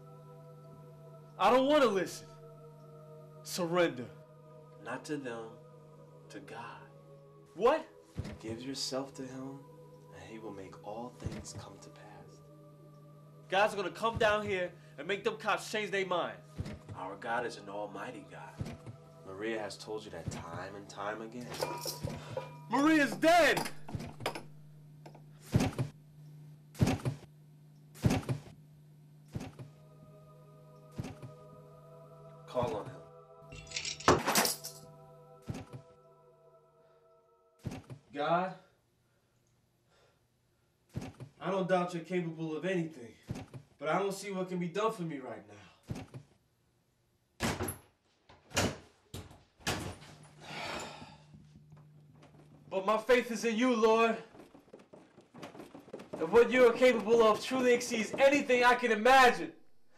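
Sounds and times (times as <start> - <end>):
soft held music chord: 0.0 - 23.8, 29.7 - 37.6.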